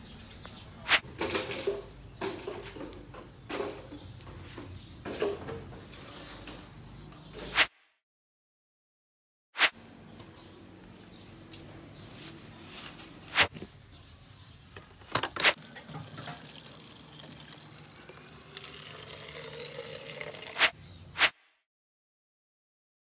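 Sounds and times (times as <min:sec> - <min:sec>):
water filling a plastic bottle: 0:15.6 - 0:20.7.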